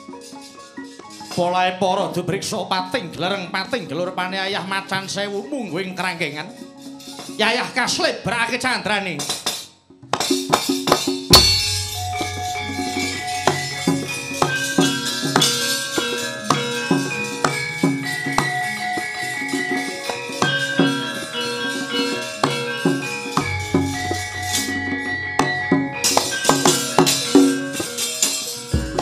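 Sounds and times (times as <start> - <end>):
metal plates clattering: 0.0 - 1.5, 9.2 - 24.8
metallophones ringing: 0.0 - 29.0
drum: 9.3 - 19.1, 22.4 - 24.7, 28.7 - 29.0.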